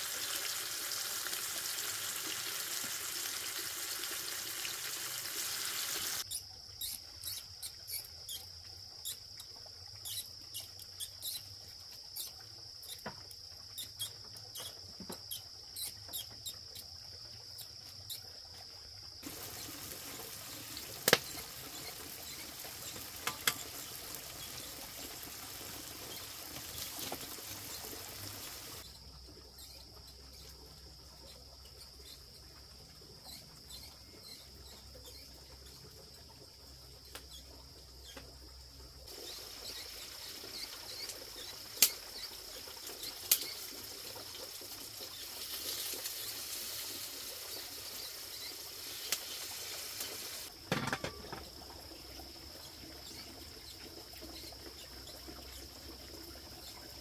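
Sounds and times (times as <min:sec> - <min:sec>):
steady hiss: 0:00.0 - 0:06.2, 0:19.2 - 0:28.8, 0:39.1 - 0:50.5
insects trilling: 0:00.0 - 0:57.0.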